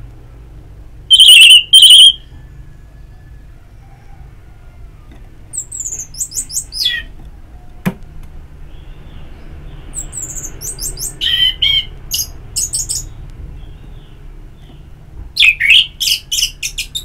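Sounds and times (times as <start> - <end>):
thrush whistled song: 1.1 - 2.4.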